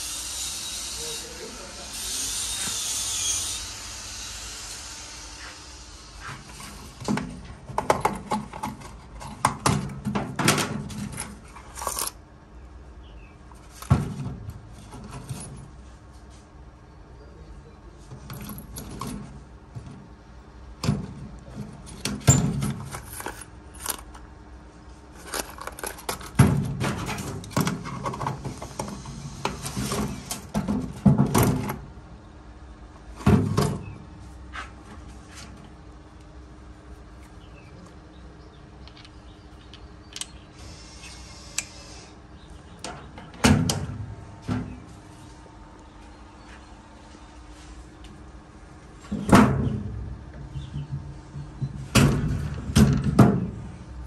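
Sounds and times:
small steel parts clinking: 11.0s - 12.2s, 21.9s - 24.2s, 25.2s - 26.4s
steel parts rattling in plastic boxes: 20.8s - 24.2s, 25.1s - 28.9s.

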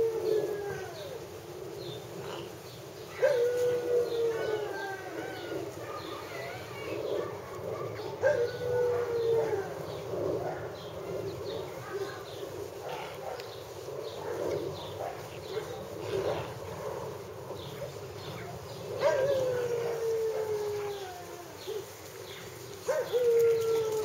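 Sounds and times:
long falling puppy cries: 19.0s - 22.0s.

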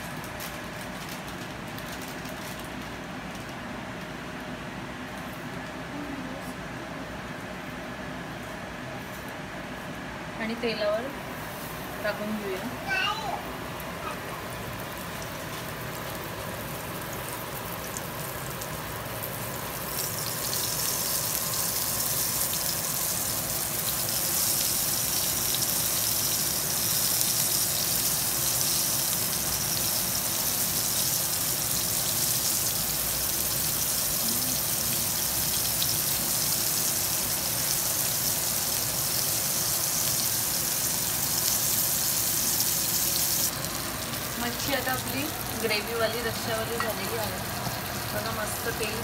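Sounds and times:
fish sizzling in hot oil: 14.7s - 49.0s.

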